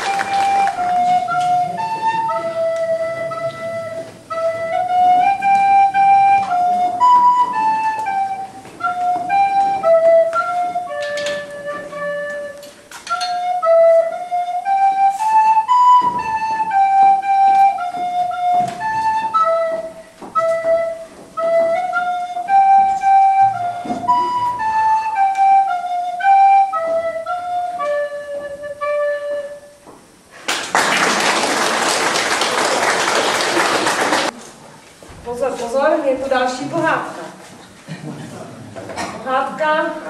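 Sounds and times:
applause: 0:00.0 - 0:01.0, 0:30.4 - 0:34.3
recorder melody: 0:00.0 - 0:30.2.

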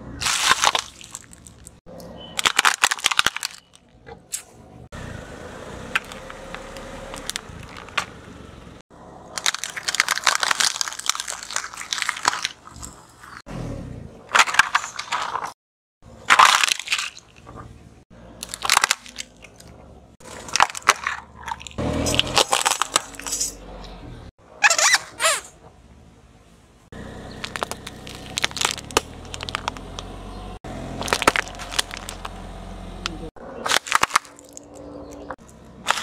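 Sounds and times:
tyre crushing plastic: 0:00.2 - 0:01.8, 0:02.4 - 0:04.4, 0:05.9 - 0:08.3, 0:09.4 - 0:13.4, 0:14.3 - 0:15.6, 0:16.3 - 0:17.6, 0:18.4 - 0:23.6, 0:27.4 - 0:30.1, 0:30.9 - 0:32.4, 0:33.6 - 0:36.0.

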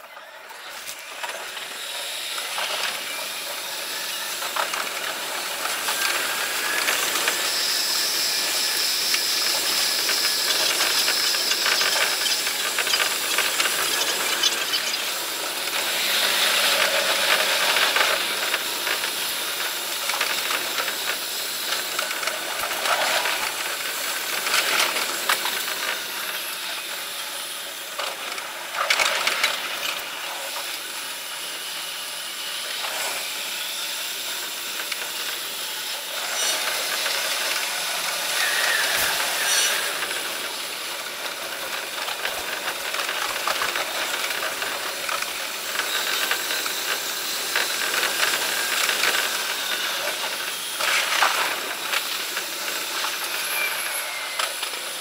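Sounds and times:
electric train running hiss: 0:00.2 - 0:55.0
thin high whine: 0:36.1 - 0:40.6.

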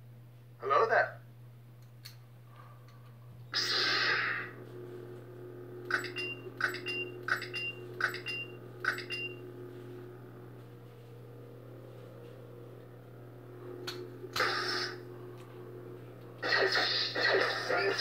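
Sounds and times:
lightsaber humming: 0:03.4 - 0:18.0
noisy saber effect burst: 0:03.5 - 0:04.6, 0:14.3 - 0:15.1, 0:16.4 - 0:18.0
click and beep signals: 0:05.9 - 0:09.4.

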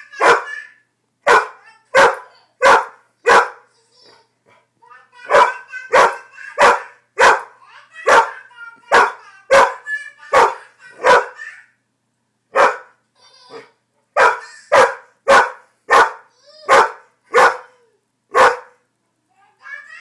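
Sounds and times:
dog barking: 0:00.2 - 0:00.5, 0:01.2 - 0:03.7, 0:05.2 - 0:11.4, 0:12.5 - 0:13.0, 0:14.2 - 0:18.8.

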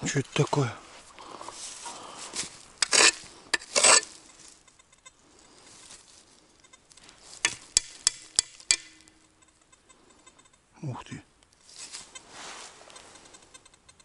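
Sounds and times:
spade scraping through soil: 0:01.6 - 0:04.8.

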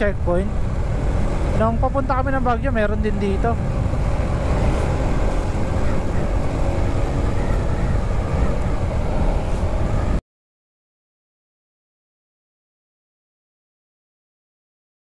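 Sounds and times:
motorcycle engine: 0:00.0 - 0:10.2
wind buffeting microphone: 0:00.0 - 0:10.2.

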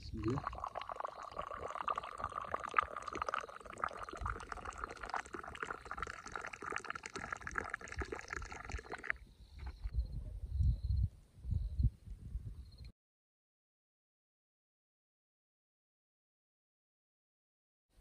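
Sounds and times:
liquid pouring: 0:00.0 - 0:09.2.

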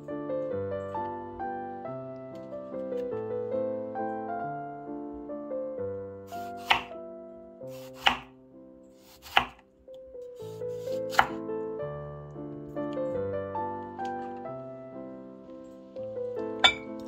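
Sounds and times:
soft piano music: 0:00.0 - 0:17.0
knife slicing tomato on board: 0:06.4 - 0:06.9, 0:07.7 - 0:08.3, 0:09.0 - 0:09.6, 0:10.4 - 0:11.4.

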